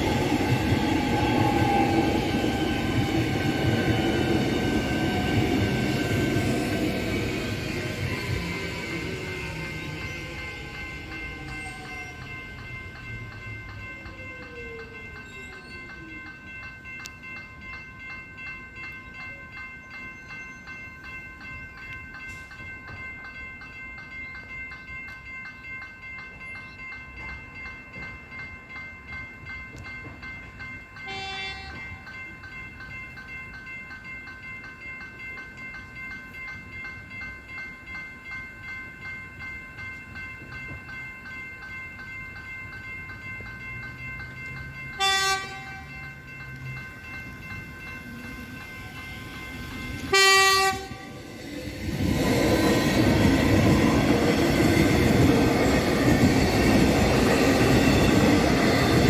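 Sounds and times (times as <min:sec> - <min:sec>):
level crossing bells ringing: 0:00.0 - 0:59.0
brief train toot: 0:31.1 - 0:31.9, 0:45.0 - 0:45.9, 0:50.1 - 0:51.2.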